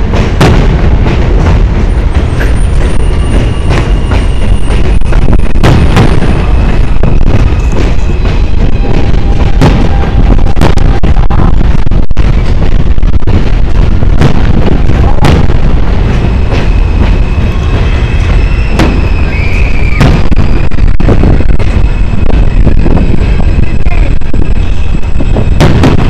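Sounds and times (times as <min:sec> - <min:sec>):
fireworks bangs: 0:00.0 - 0:26.0
loud low rumble: 0:00.0 - 0:26.0
high whistling tone: 0:02.4 - 0:10.4, 0:16.2 - 0:22.8.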